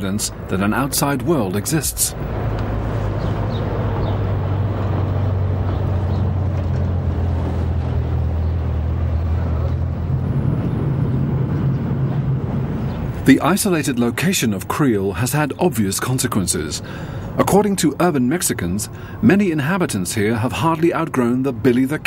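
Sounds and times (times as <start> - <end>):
engine humming: 0.0 - 22.0
outdoor noise: 0.0 - 22.0.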